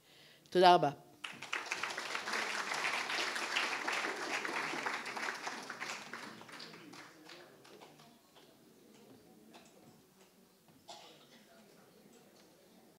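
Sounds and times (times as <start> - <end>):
audience applauding: 1.2 - 8.0.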